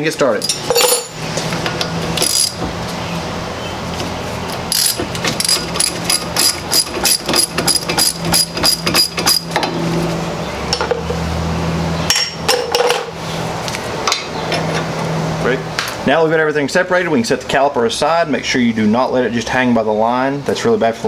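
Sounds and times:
socket ratchet clicking: 0:04.7 - 0:09.5.

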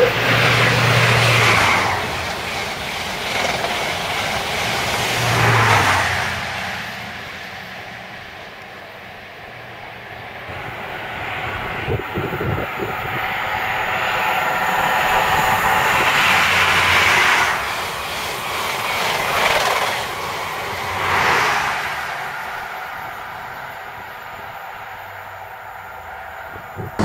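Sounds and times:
diesel engine whine: 0:00.0 - 0:02.2
train rushing past: 0:00.0 - 0:27.0.

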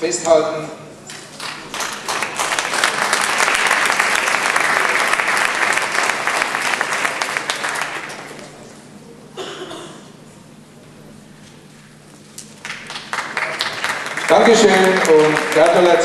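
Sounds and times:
audience applauding: 0:01.3 - 0:08.6, 0:12.6 - 0:16.0.

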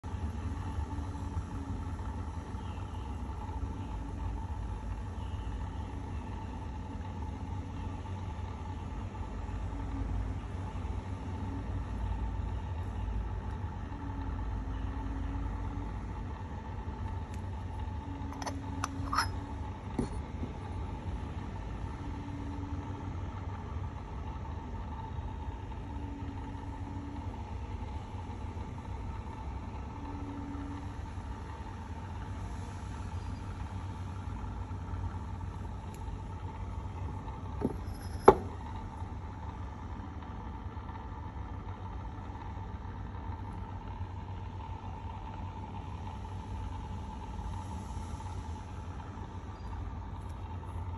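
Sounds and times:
porcelain clink: 0:18.3 - 0:20.1, 0:37.6 - 0:38.6.

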